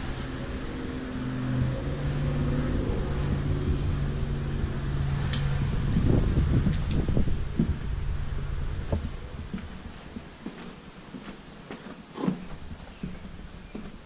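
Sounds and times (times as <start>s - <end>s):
low hum of tones: 0.0s - 10.5s.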